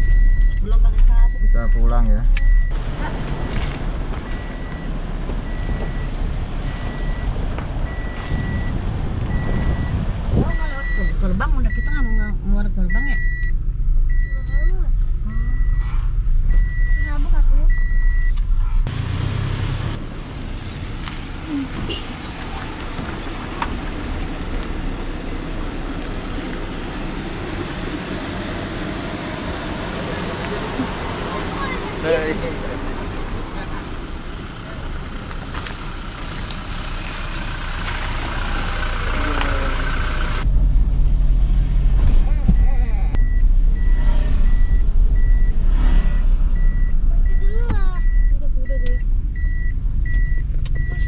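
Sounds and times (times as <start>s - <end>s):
vehicle warning beeper: 0.0s - 18.4s, 42.5s - 51.0s
low vehicle rumble: 0.0s - 51.0s.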